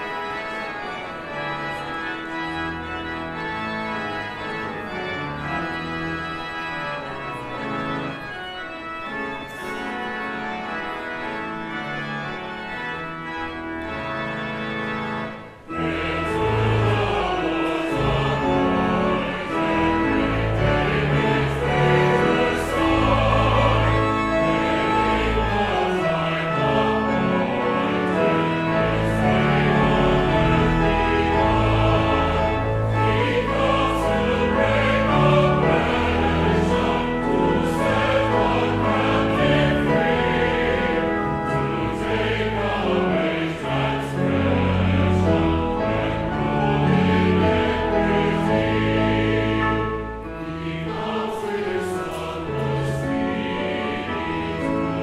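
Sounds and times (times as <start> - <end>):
choir singing a hymn: 0.0 - 55.0
long low accompanying notes: 0.0 - 55.0.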